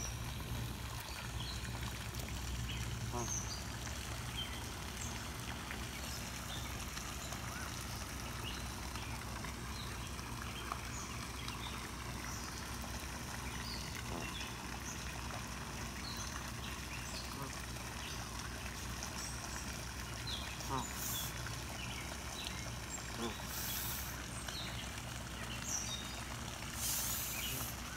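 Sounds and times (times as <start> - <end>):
young waterfowl peeping: 2.6 - 3.8, 11.4 - 14.9, 17.1 - 18.5, 19.4 - 21.8, 22.4 - 24.7, 26.7 - 27.9.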